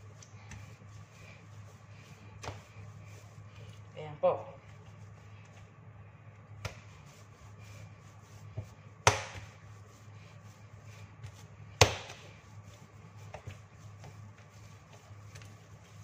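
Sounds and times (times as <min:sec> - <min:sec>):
dough slapping on countertop: 0:00.1 - 0:00.9, 0:02.3 - 0:02.8, 0:06.5 - 0:07.3, 0:08.3 - 0:09.8, 0:11.1 - 0:16.0
soft knocks of dough: 0:08.6 - 0:09.6, 0:11.7 - 0:12.3.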